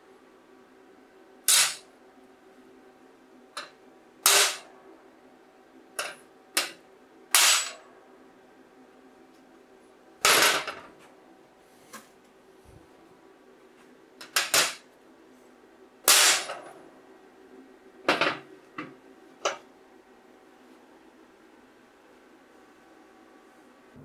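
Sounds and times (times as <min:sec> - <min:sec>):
hammer striking steel plate: 0:01.5 - 0:01.8, 0:04.3 - 0:04.6, 0:07.4 - 0:07.8, 0:16.1 - 0:16.5.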